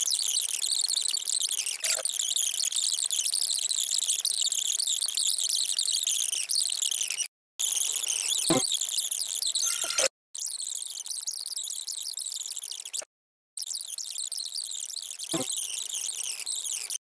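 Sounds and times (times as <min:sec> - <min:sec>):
sped-up high-pitched voice chattering: 0:09.6 - 0:10.1.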